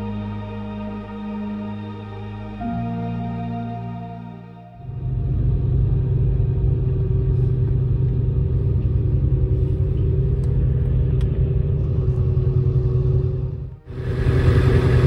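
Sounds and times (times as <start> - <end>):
ferry machinery rumble: 4.8 - 15.0.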